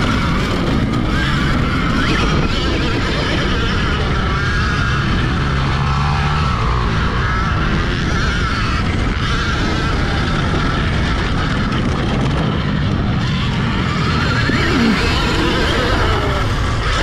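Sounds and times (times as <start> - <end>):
electric motor whine: 0.0 - 17.0
wind buffeting: 6.5 - 17.0.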